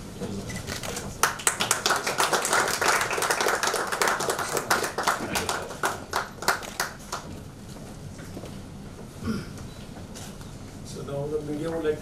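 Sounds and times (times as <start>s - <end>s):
people applauding: 0.7s - 7.3s.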